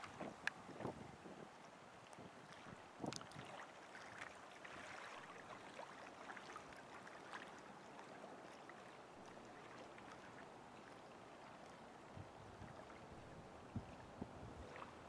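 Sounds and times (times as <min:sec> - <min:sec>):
soft ticks: 0:00.0 - 0:00.6.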